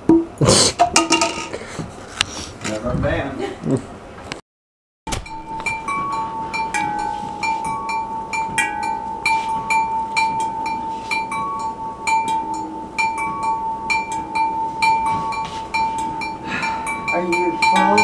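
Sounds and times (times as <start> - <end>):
glass cylinders flicked ringing: 5.3 - 18.0.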